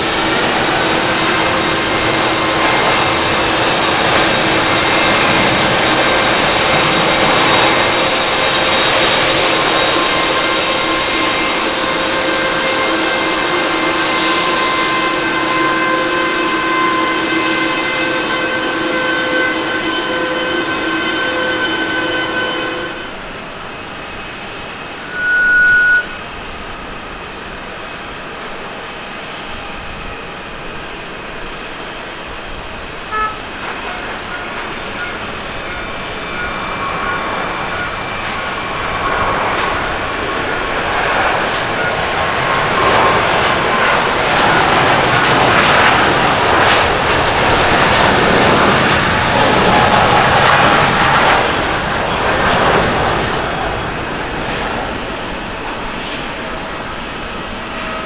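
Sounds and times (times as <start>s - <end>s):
jet engines at takeoff power: 0.0s - 58.0s
short high beep: 25.0s - 26.2s.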